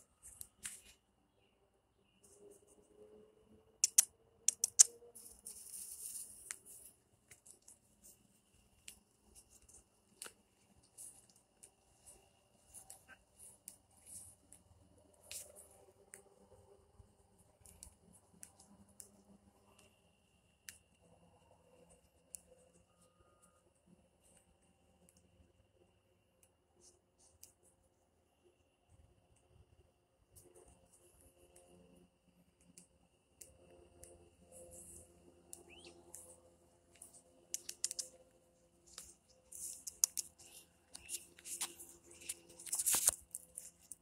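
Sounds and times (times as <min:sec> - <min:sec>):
sharp clicks: 0:03.8 - 0:05.0, 0:35.5 - 0:38.3, 0:38.9 - 0:44.0
faint ticks and clicks: 0:03.8 - 0:27.8, 0:30.3 - 0:44.0
handling clicks and rustles: 0:33.4 - 0:44.0.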